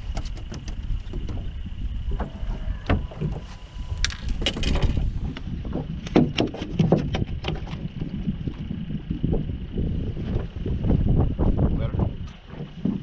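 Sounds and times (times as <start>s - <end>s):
sharp clicks and knocks: 0.0s - 1.5s
water lapping against boat hull: 0.0s - 11.6s, 12.2s - 13.0s
wind on microphone: 0.0s - 13.0s.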